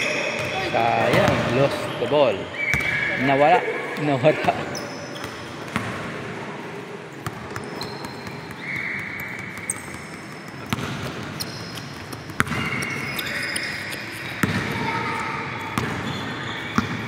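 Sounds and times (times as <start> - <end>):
sneakers squeaking on court: 0.0 - 6.0, 7.1 - 17.0
indoor hall noise: 0.0 - 17.0
basketball bouncing on floor: 9.6 - 13.0, 14.4 - 14.7.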